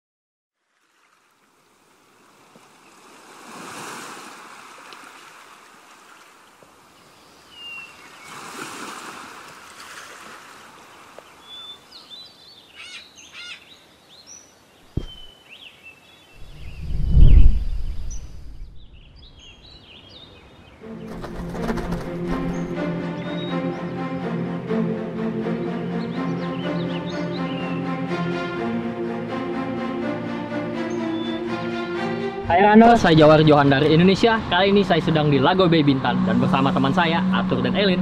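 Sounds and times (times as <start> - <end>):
birds chirping and calling: 11.3 - 24.2, 25.9 - 28.1
short knock: 14.9 - 15.3
rushing noise: 16.4 - 19.0
deep rumble: 16.4 - 19.4.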